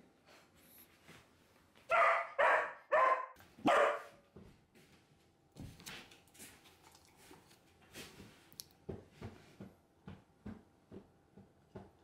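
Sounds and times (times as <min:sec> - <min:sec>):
puppy barking: 0:01.9 - 0:04.2.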